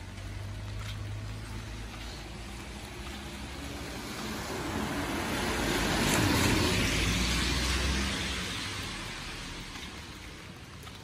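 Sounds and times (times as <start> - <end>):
tyre hiss on wet road: 0.2 - 11.0.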